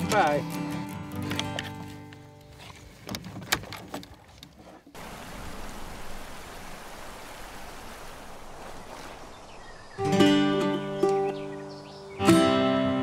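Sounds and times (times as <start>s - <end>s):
running water: 2.9s - 10.9s.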